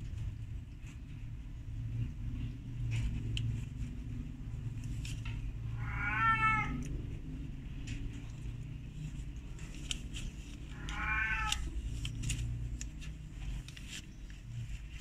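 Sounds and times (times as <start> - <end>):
low steady hum: 0.0 - 15.0
kitten mewing: 5.7 - 7.0, 10.7 - 11.8.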